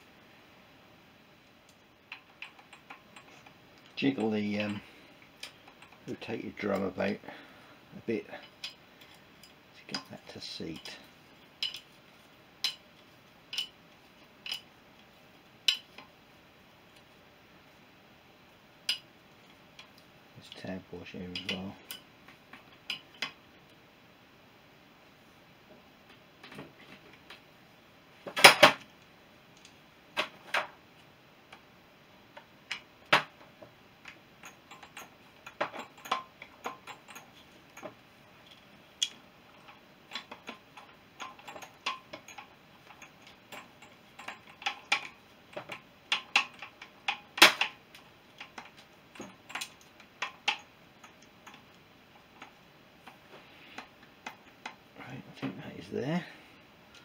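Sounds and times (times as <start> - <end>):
tools clicking on metal parts: 1.7 - 7.0, 8.3 - 12.0, 12.6 - 16.1, 18.8 - 23.4, 32.4 - 54.8.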